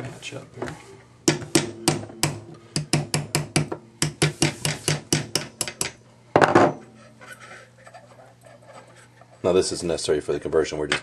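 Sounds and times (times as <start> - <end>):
small hammer tapping a punch: 1.3 - 6.0.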